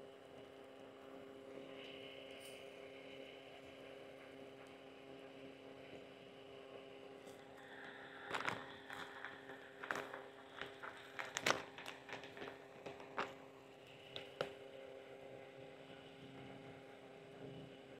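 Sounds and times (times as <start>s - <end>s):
faint steady hum: 0.0s - 17.9s
plastic packet crinkling: 7.7s - 14.6s.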